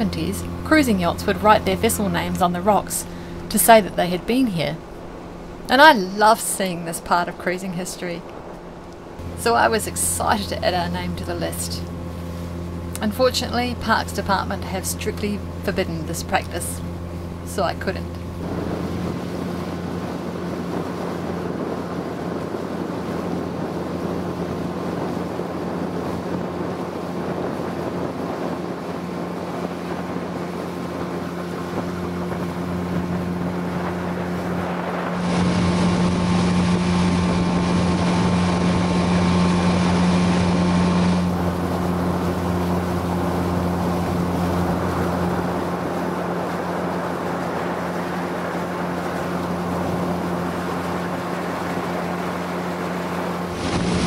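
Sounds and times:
boat motor running: 0:00.0 - 0:54.0
wind on microphone: 0:16.8 - 0:54.0.

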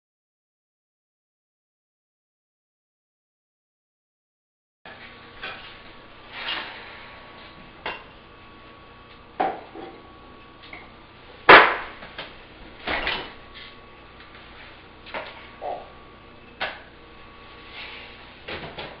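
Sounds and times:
knocks and clatters in a kitchen: 0:07.4 - 0:08.2, 0:09.1 - 0:14.4, 0:15.0 - 0:17.0, 0:18.4 - 0:19.0.

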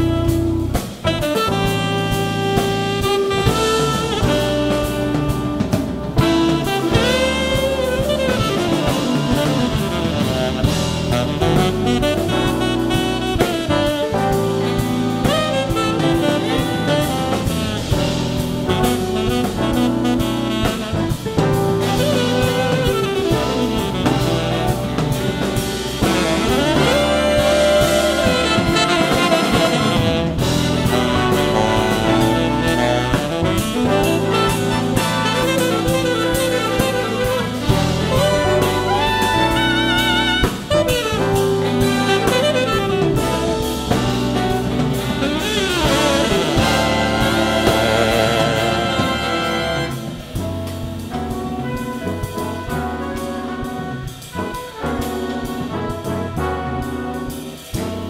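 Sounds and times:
jazz big band playing: 0:00.0 - 0:58.0.

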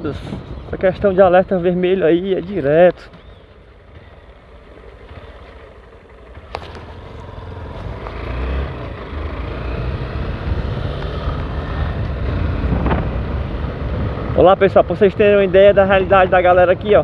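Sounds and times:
motorcycle engine rumble: 0:00.0 - 0:17.0
wind noise: 0:09.9 - 0:17.0.

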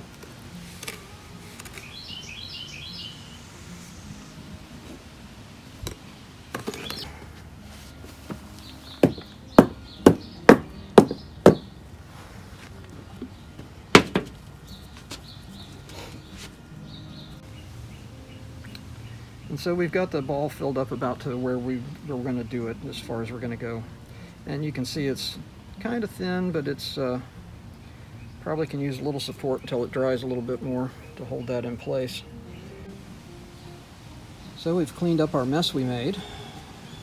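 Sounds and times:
birds chirping: 0:00.0 - 0:37.0
sharp knocks on concrete form: 0:09.0 - 0:11.6, 0:14.0 - 0:14.4.

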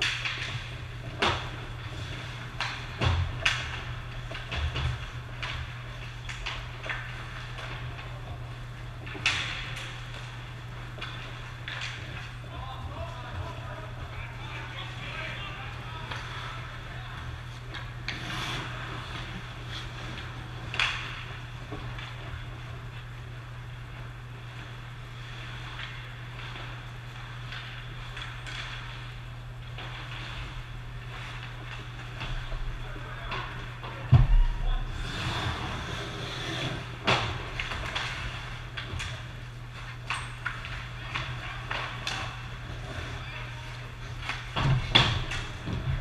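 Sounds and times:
hockey sticks and puck clacking: 0:00.0 - 0:22.6, 0:36.2 - 0:42.6
broad noise haze: 0:00.0 - 0:46.0
steady low hum: 0:00.0 - 0:46.0.

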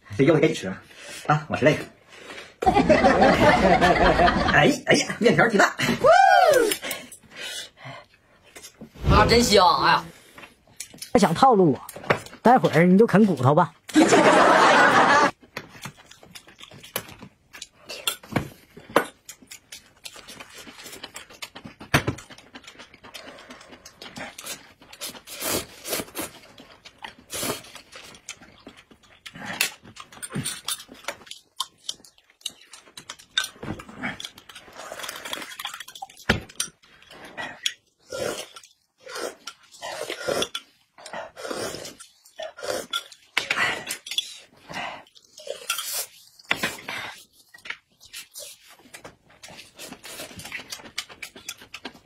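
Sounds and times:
slurping noodles and porridge: 0:20.2 - 0:32.8, 0:33.8 - 0:36.1, 0:36.8 - 0:52.0.

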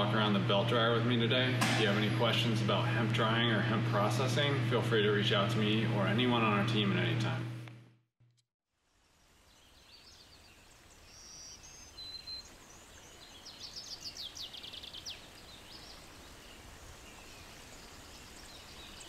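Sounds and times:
birds chirping and trilling: 0:09.3 - 0:19.0.

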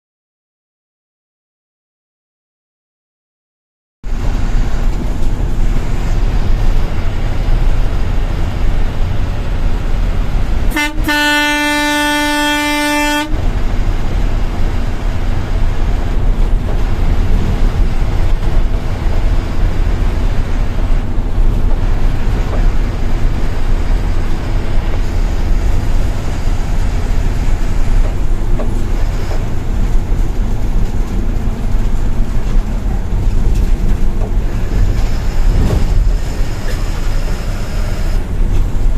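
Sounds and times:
bus engine and road noise: 0:04.0 - 0:38.9
horn blast: 0:10.7 - 0:13.4.

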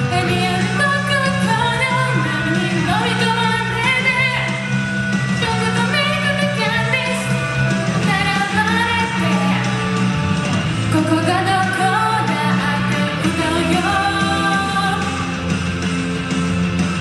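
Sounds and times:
woman singing into microphone: 0:00.0 - 0:04.6, 0:05.4 - 0:09.8, 0:10.9 - 0:15.3
karaoke backing track: 0:00.0 - 0:17.0.

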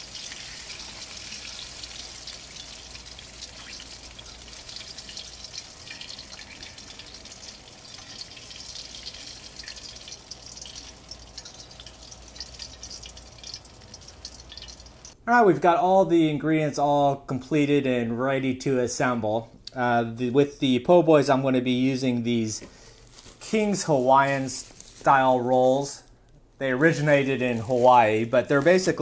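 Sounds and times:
fish fillets frying in oil: 0:00.0 - 0:15.2.

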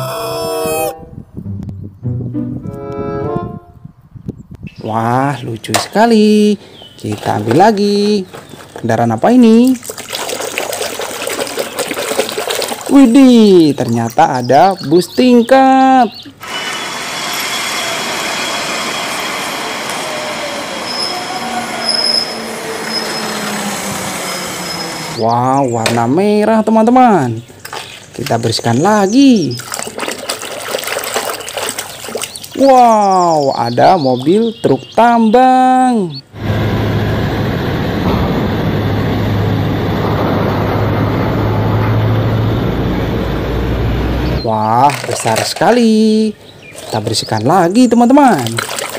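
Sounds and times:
high squealing whine: 0:00.0 - 0:01.9, 0:16.4 - 0:25.9, 0:35.7 - 0:44.6
street traffic: 0:16.2 - 0:26.2, 0:36.0 - 0:47.0
diesel engine drone: 0:16.3 - 0:26.0, 0:36.0 - 0:44.7
lower falling whine: 0:16.6 - 0:25.3, 0:36.3 - 0:44.4
bus driving past: 0:17.5 - 0:25.2, 0:36.3 - 0:44.4
heavy rushing noise: 0:36.3 - 0:44.4.

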